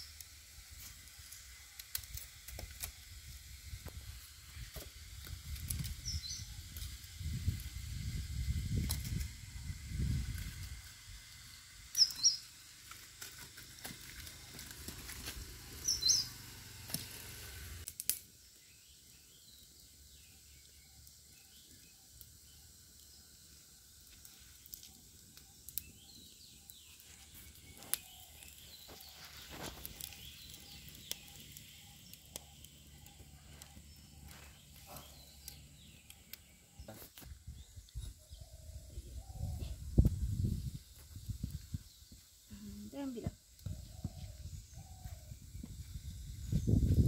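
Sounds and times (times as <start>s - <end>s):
wood fire crackling: 0.0s - 38.2s
faint regular chirping: 5.7s - 7.2s, 11.4s - 12.7s, 15.8s - 16.4s, 18.3s - 47.0s
bird chirping: 11.9s - 12.5s, 15.8s - 16.4s, 25.4s - 39.9s.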